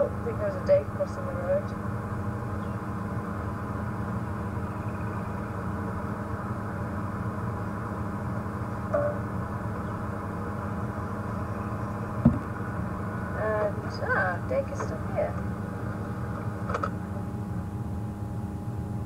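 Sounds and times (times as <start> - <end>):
vehicle engine running: 0.0 - 19.0.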